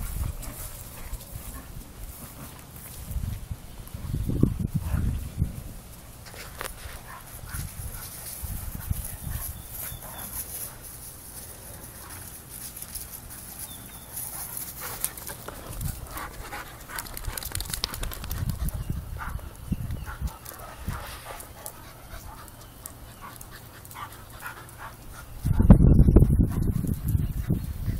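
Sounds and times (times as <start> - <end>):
dogs panting: 0.0 - 3.1, 4.0 - 5.3, 6.3 - 27.9
dogs scuffling: 5.9 - 19.3.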